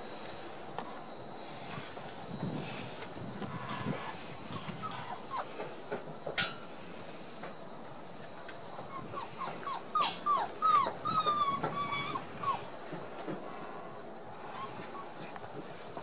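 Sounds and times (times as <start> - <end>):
puppy whimpering: 4.5 - 5.8, 8.9 - 12.9.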